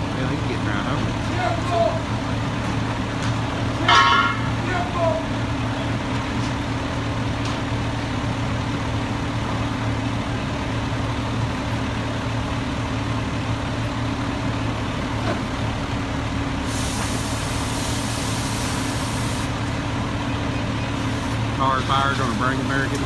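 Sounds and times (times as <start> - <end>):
diesel engine droning: 0.0 - 23.0
high hiss: 16.6 - 19.6.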